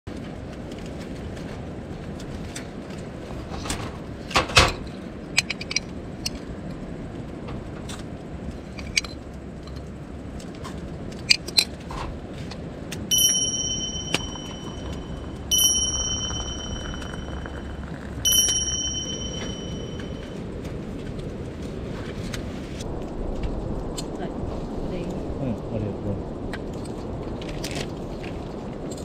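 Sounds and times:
metal kettle ringing clink: 0:13.1 - 0:20.3
low steady background: 0:13.1 - 0:20.4.

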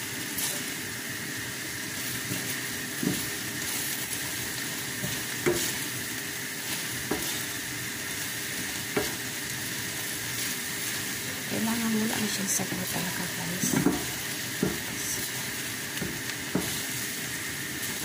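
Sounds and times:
meat sizzling in a frying pan: 0:00.0 - 0:18.0
spatula knocking against pan: 0:13.7 - 0:14.8.

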